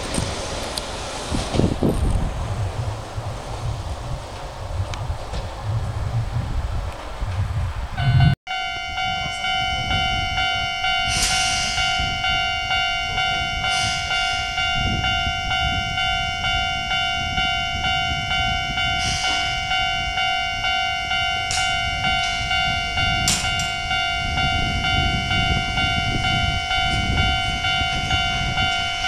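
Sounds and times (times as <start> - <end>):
level crossing warning bell: 8.0 - 29.0.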